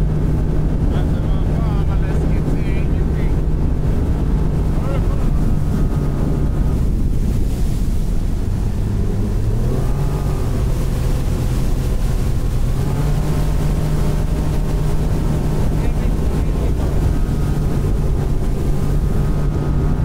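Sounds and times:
outboard motor droning: 0.0s - 20.0s
wind rushing over microphone: 0.0s - 20.0s.

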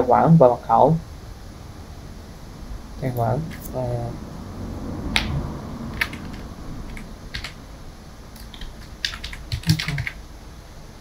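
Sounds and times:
computer keyboard typing: 5.2s - 7.6s, 8.4s - 10.2s.

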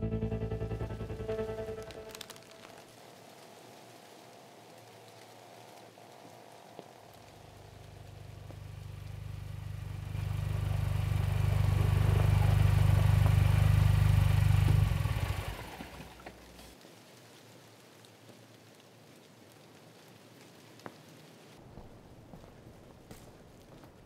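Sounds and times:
car engine rumble: 7.3s - 16.7s.

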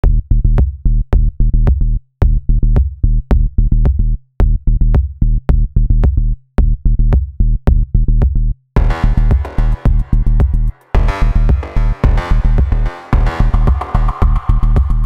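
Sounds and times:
electronic drum beat music: 0.6s - 15.0s
low bass note: 8.8s - 15.0s.

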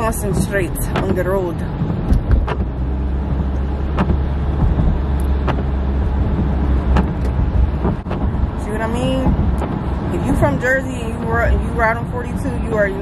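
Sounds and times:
car driving on road: 0.0s - 13.0s.

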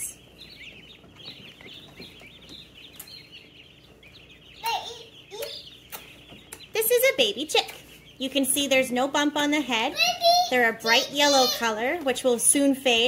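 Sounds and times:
baby chicks peeping: 0.0s - 13.0s.

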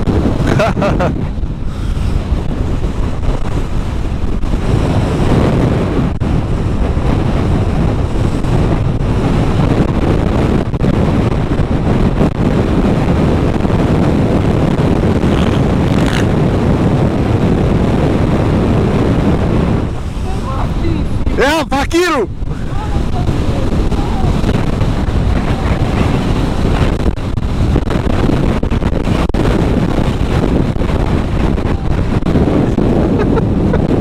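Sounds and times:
atv engine running: 0.0s - 21.2s
wind buffeting microphone: 0.0s - 34.0s.

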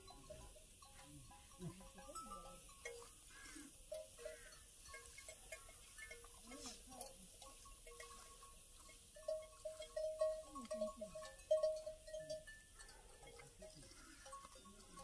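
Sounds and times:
livestock calling: 3.0s - 5.9s, 12.8s - 14.9s.

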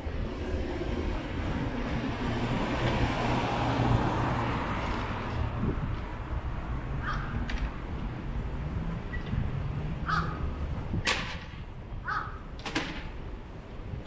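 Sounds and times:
crow cawing: 7.0s - 7.4s, 10.0s - 10.4s, 12.0s - 12.5s.

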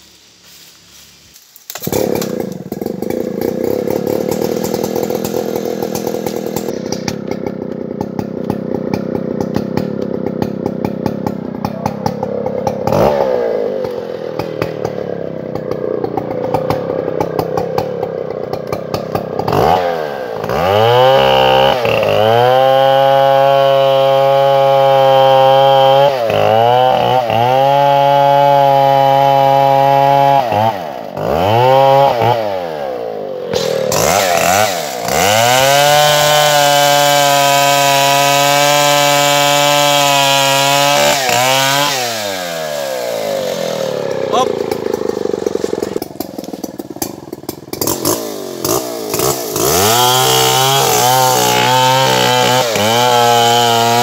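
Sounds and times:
chainsaw cutting into wood: 1.3s - 54.0s
chainsaw idling and revving: 1.6s - 54.0s.

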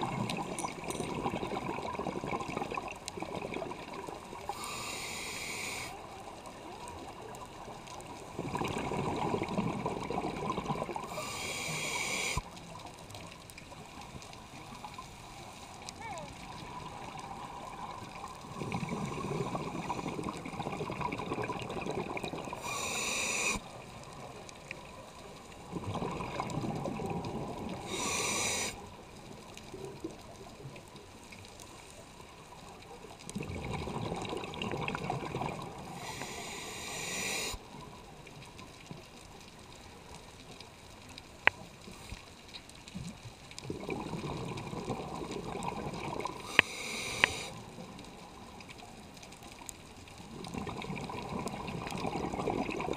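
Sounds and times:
exhaled bubbles underwater: 0.0s - 4.8s, 5.7s - 13.2s, 16.1s - 28.7s, 33.2s - 38.2s, 43.0s - 49.4s, 50.0s - 52.9s
regulator air hiss: 4.5s - 6.0s, 11.1s - 12.4s, 22.6s - 23.6s, 27.9s - 28.8s, 36.0s - 37.6s, 46.4s - 47.5s.

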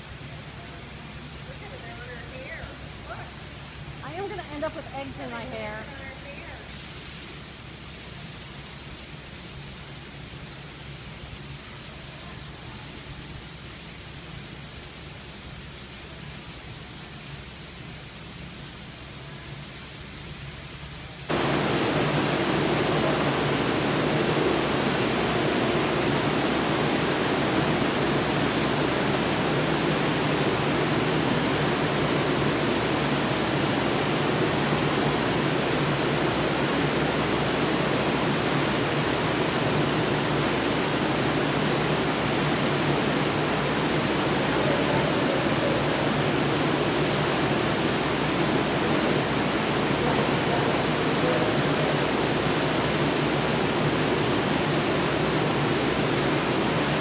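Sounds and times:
steady rushing noise: 21.3s - 57.0s.

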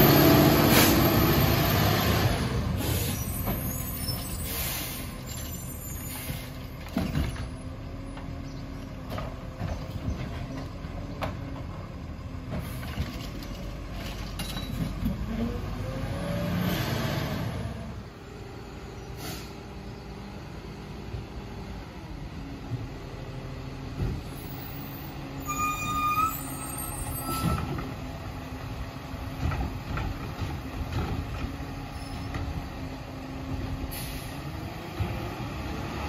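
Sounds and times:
garbage truck engine pulling away: 0.0s - 36.0s
air brakes hissing: 2.8s - 6.7s, 19.1s - 19.6s, 33.9s - 34.4s.

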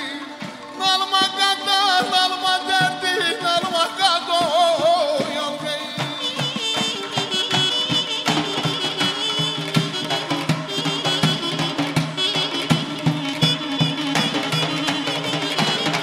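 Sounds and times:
person singing: 0.0s - 7.7s
small drums played with sticks: 0.0s - 16.0s
wind instrument melody: 0.0s - 16.0s
large hand drum beating: 2.0s - 16.0s.

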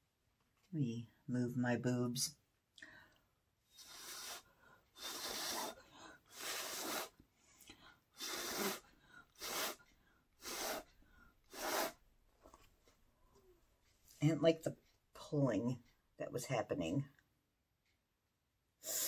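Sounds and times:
person blowing puffs of breath: 3.7s - 12.0s, 18.8s - 19.0s.

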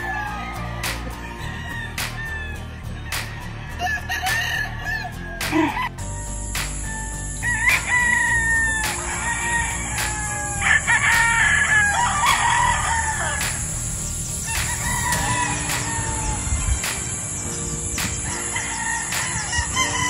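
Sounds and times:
roosters crowing: 0.0s - 20.0s
high-pitched whine: 6.0s - 19.9s.

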